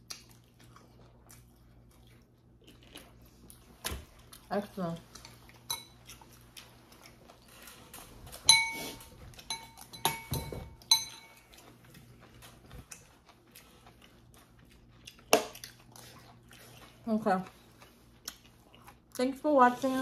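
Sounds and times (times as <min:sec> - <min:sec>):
utensils clinking against ceramic bowl: 0:05.7 - 0:06.0, 0:08.5 - 0:11.4.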